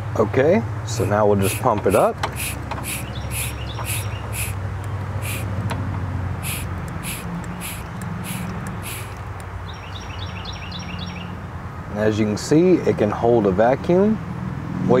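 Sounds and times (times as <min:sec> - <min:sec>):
hand vacuum pump hissing: 0:01.0 - 0:04.6, 0:05.2 - 0:05.7, 0:06.4 - 0:09.3.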